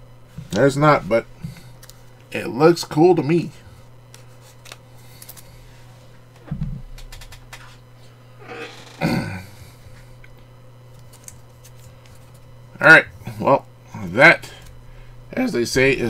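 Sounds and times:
plastic card sleeve crinkling: 4.1 - 5.5, 10.9 - 12.5.

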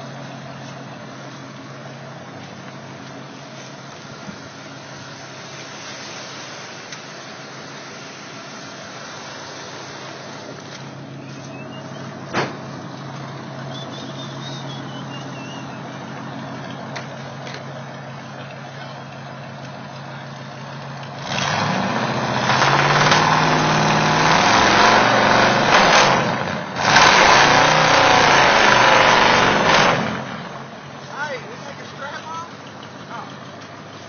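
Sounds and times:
truck engine idling: 0.0 - 26.9, 27.5 - 34.0
engine revving through loud exhaust: 13.5 - 17.0, 20.6 - 30.8.

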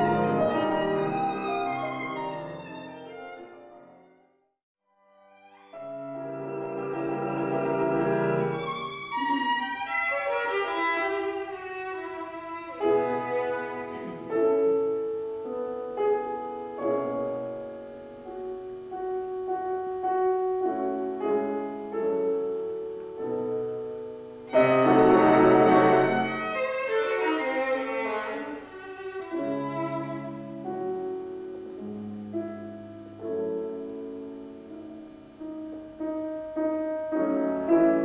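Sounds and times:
violin: 0.0 - 4.0, 5.2 - 15.0, 24.5 - 31.7
piano: 0.0 - 4.3, 5.0 - 38.0.

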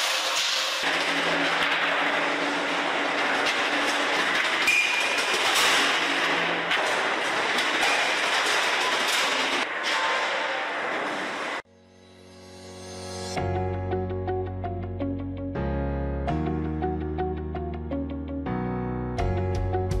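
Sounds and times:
metallic clatter and rattling: 0.0 - 11.6
machine noise: 0.0 - 13.4.

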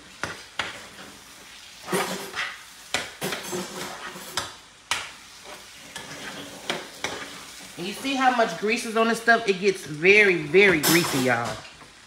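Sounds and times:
utensil scraping metal skillet: 0.0 - 8.6
meat sizzling: 0.0 - 12.0.

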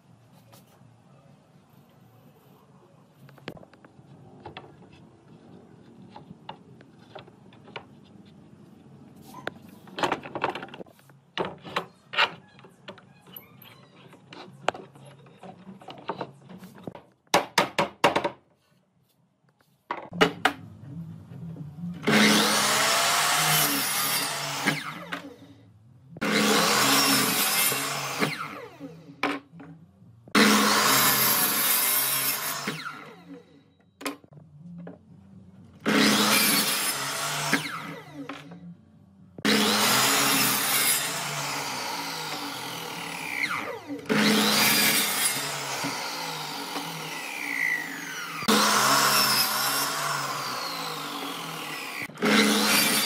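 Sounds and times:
power tool working wood: 22.0 - 25.3, 26.2 - 28.9, 30.4 - 33.2, 35.8 - 38.4, 39.4 - 53.0.

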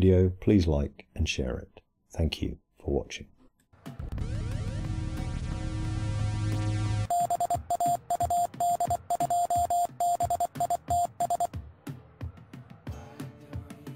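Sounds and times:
electronic tone beeping: 7.0 - 11.5.

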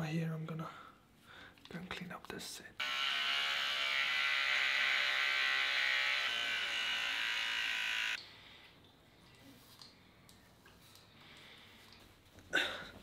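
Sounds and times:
electric hair clippers buzzing: 2.8 - 8.2.

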